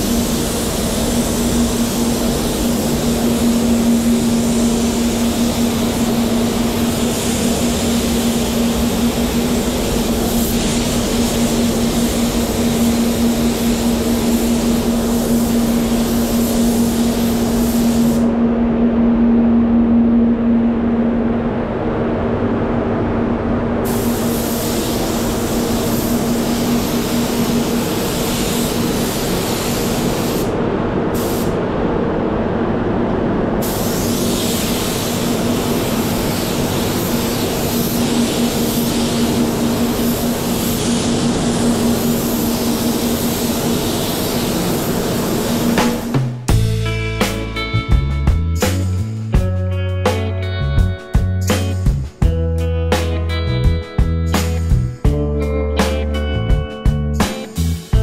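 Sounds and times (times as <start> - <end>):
spray gun hissing: 0.0 - 18.3, 23.8 - 30.6, 31.2 - 31.6, 33.6 - 46.2
extraction fan low hum: 0.0 - 58.0.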